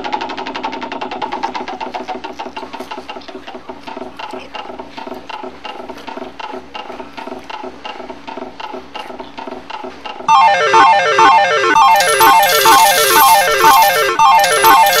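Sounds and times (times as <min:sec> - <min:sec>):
electronic jingle: 0:10.3 - 0:15.0
slot machine clicking: 0:10.3 - 0:15.0.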